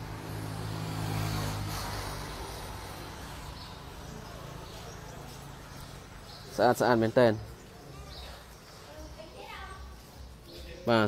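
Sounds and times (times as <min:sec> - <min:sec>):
vehicle engine hum passing by: 0:00.0 - 0:06.6.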